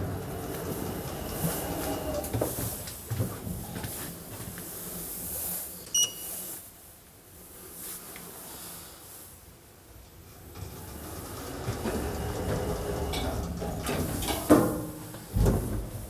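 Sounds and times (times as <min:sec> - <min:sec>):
elevator doors sliding open: 0:00.0 - 0:04.1, 0:10.0 - 0:16.0.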